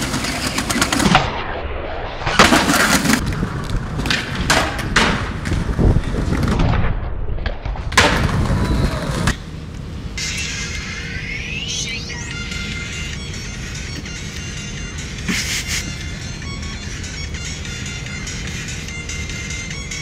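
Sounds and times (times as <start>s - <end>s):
skateboard wheels rolling on stone: 0.0s - 1.2s, 2.3s - 6.8s, 7.4s - 9.4s
skateboard clacking on landings: 2.7s - 6.5s.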